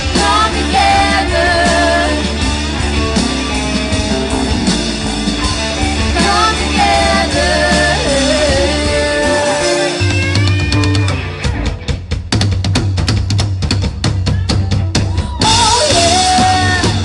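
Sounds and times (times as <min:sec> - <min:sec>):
women singing: 0:00.0 - 0:02.6, 0:05.4 - 0:10.2, 0:15.4 - 0:17.0
live rock band playing: 0:00.0 - 0:17.0.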